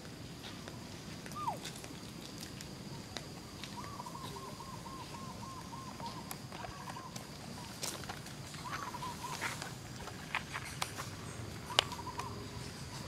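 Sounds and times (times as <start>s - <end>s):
faint animal calls: 1.3s - 1.8s, 3.5s - 9.7s, 11.3s - 13.0s.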